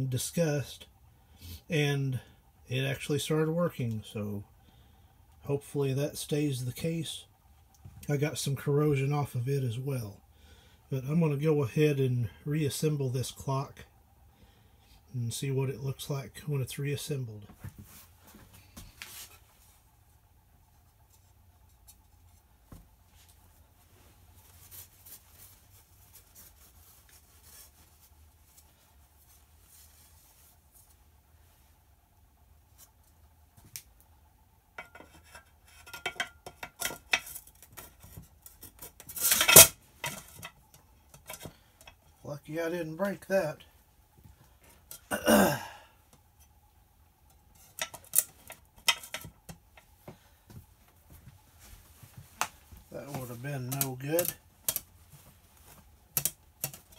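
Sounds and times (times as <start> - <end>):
low steady hum: 0.0 - 56.9
man's throat sound: 45.1 - 45.8.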